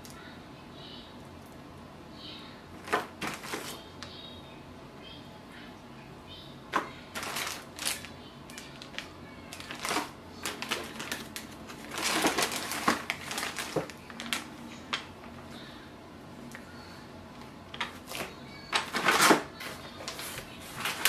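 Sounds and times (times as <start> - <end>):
plastic bag crinkling: 2.8 - 3.9, 6.7 - 15.1, 17.7 - 21.0.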